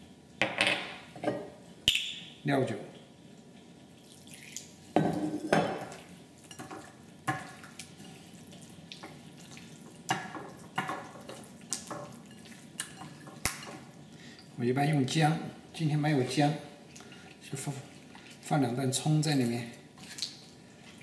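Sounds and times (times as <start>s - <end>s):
hands squishing fish in a bowl: 5.9s - 14.0s, 19.2s - 21.0s.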